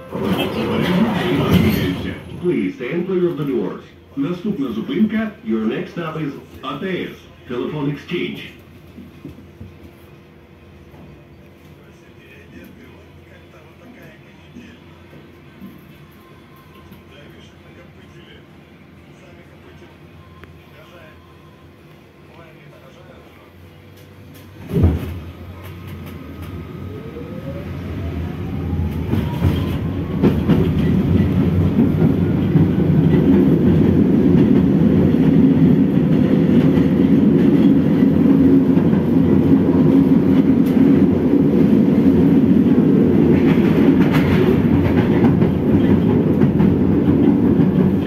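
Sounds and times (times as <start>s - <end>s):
tram wheels rumbling on rails: 0.0s - 7.2s, 23.7s - 48.0s
tram traction drive whine: 23.7s - 48.0s.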